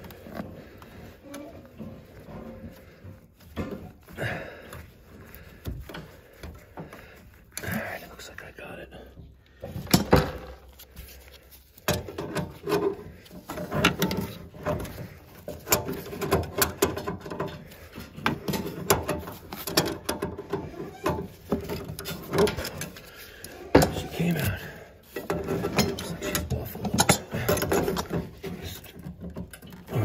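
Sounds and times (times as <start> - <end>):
metal clicks knocks and scrapes: 9.6 - 30.0.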